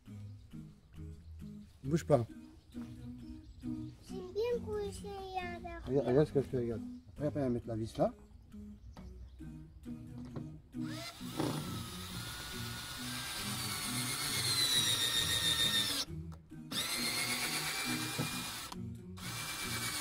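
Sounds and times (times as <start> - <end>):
cordless drill motor whine: 10.8 - 16.1, 16.7 - 20.0.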